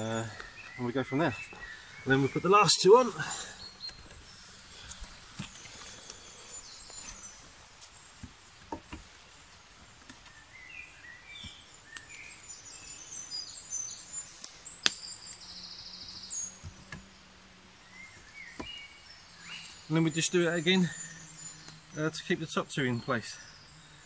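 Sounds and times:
songbirds chirping: 0:00.0 - 0:24.0.

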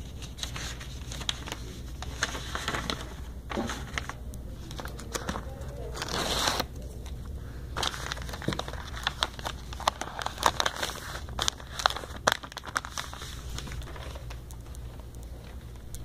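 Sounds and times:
sharp crackles: 0:04.0 - 0:16.0.

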